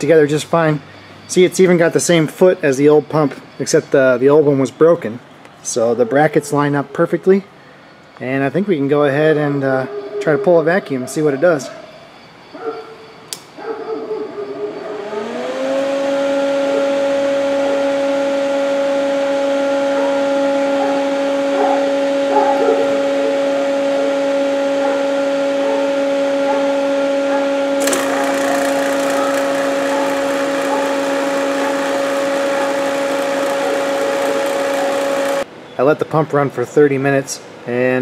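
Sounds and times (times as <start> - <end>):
click: 13.3 - 13.5
vacuum pump whining and humming: 14.9 - 35.5.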